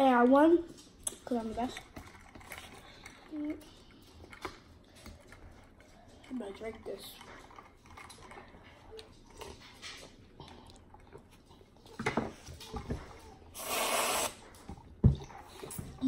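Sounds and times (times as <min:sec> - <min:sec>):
aerosol can hissing spray: 0:13.6 - 0:14.4.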